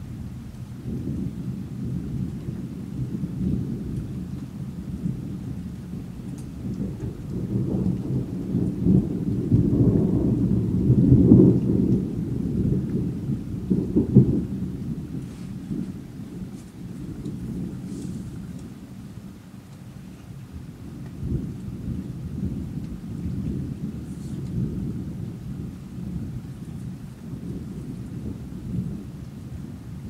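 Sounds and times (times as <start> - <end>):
rain falling: 0.0 - 30.0
thunder rumbling: 0.0 - 30.0
sharp thunder clap: 6.2 - 18.8.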